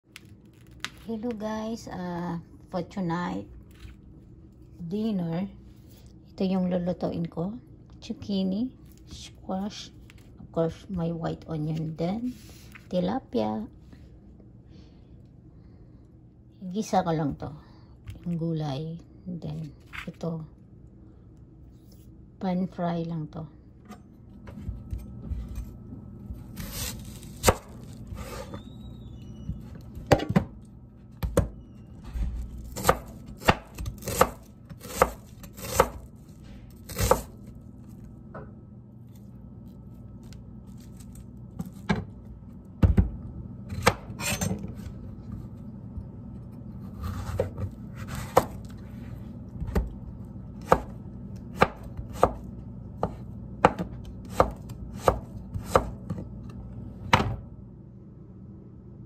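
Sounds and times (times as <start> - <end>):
low steady hum: 0.0 - 59.0
knife chopping on cutting board: 32.7 - 36.1, 36.8 - 37.4, 43.7 - 44.8, 47.0 - 48.7, 50.6 - 56.2.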